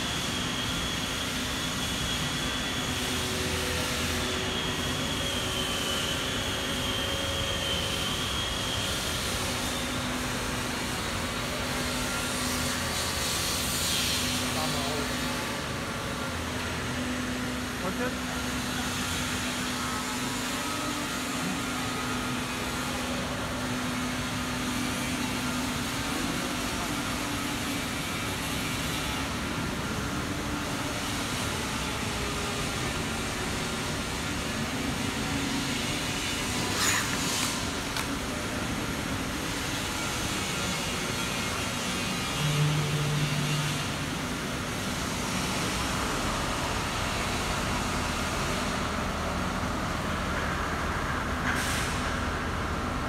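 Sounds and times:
overhead crane mechanical noise: 0.0 - 53.0.

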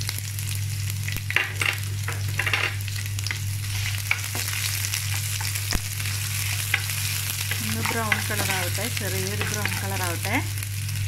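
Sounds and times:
food sizzling in oil: 0.0 - 11.0
steady low hum: 0.0 - 11.0
spatula scraping pan: 3.6 - 10.2.

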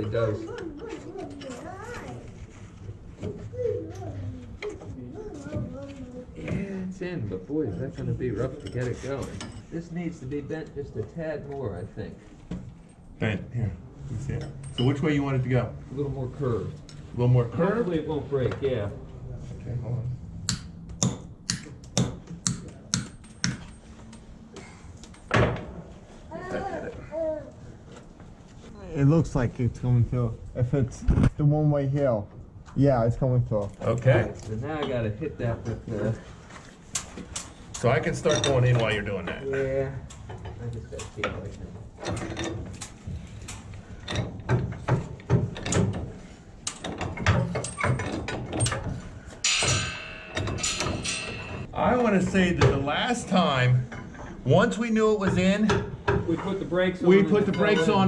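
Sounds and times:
wrench clicks and knocks: 20.5 - 24.3, 44.0 - 51.7
heavy metal clank: 46.8 - 51.7
metal-on-metal tool knocks: 49.4 - 51.7.

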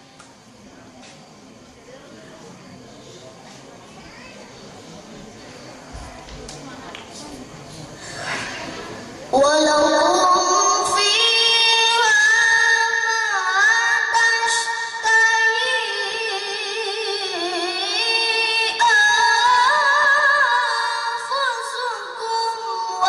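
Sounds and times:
child reciting melodically: 9.3 - 23.0.

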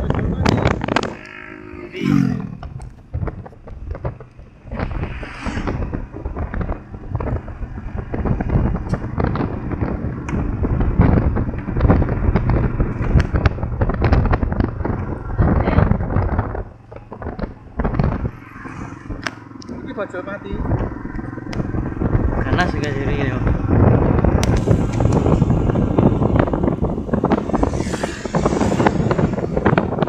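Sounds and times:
motorcycle engine running: 0.0 - 30.0
wind buffeting a microphone: 0.0 - 30.0.

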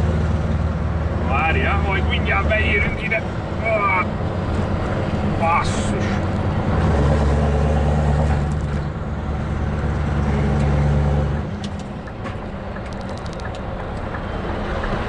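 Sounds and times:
road noise: 0.0 - 15.0
truck engine deep drone: 0.0 - 15.0.

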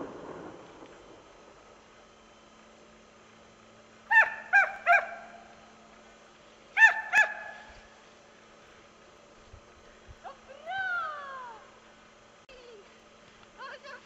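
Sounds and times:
hound baying: 4.1 - 5.4, 6.8 - 7.7.

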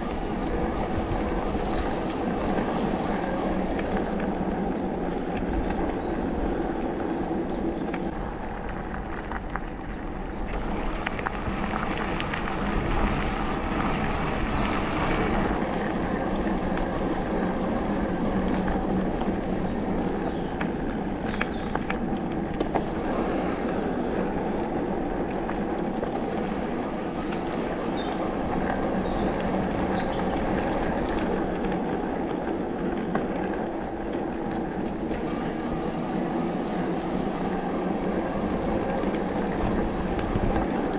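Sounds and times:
bike rattling: 0.0 - 40.9
tyres rumbling on dirt: 0.0 - 40.9.

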